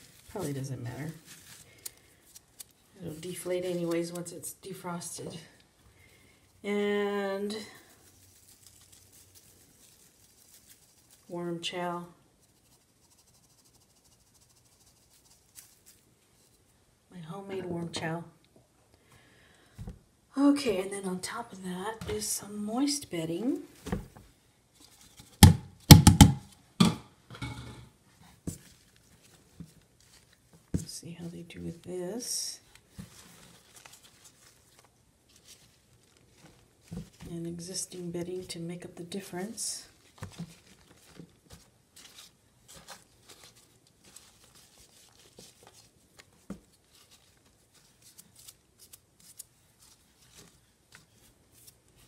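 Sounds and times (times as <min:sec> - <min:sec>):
sharp knocks on a container: 0:25.4 - 0:27.7
shredded cardboard rustling: 0:39.9 - 0:52.0.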